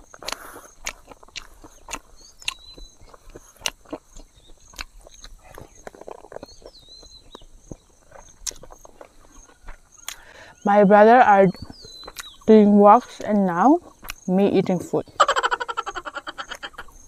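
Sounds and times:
wet mouth clicks and smacks: 0.0s - 10.3s, 11.6s - 12.4s, 13.8s - 14.3s
person chewing food: 0.0s - 10.6s, 11.5s - 14.3s
insect chirping: 0.0s - 17.0s.

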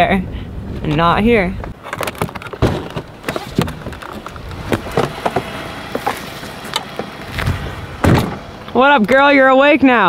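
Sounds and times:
footsteps on gravel: 1.7s - 9.2s.

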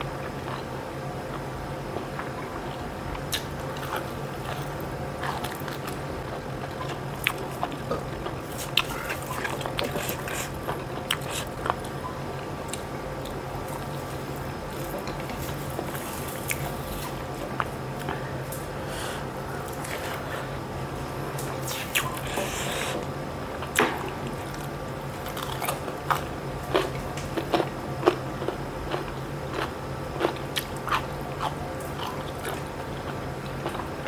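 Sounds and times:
person chewing food: 1.3s - 12.0s, 12.7s - 18.3s, 24.4s - 34.0s.

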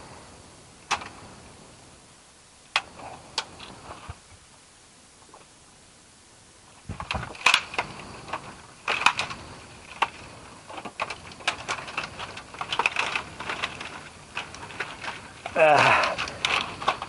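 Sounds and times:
dry branches cracking and snapping: 6.8s - 17.0s.

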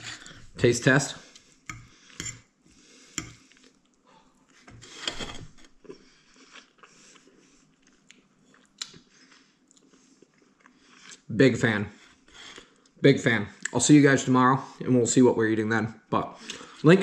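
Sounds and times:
person chewing: 5.8s - 11.3s.

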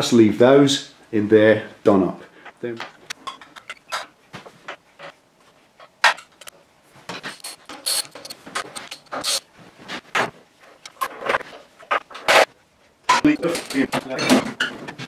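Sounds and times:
short scraping rasps: 7.2s - 9.4s.

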